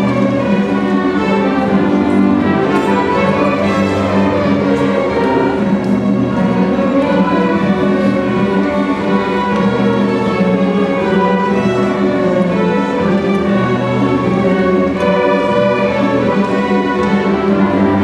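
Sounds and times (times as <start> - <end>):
violins and violas bowing: 0.0 - 18.0.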